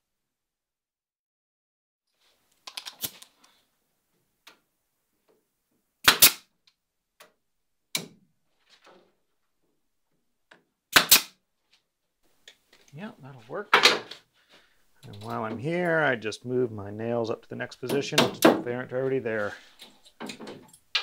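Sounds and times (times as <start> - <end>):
nail gun shots: 6.0 - 6.5, 10.9 - 11.4, 18.2 - 18.6.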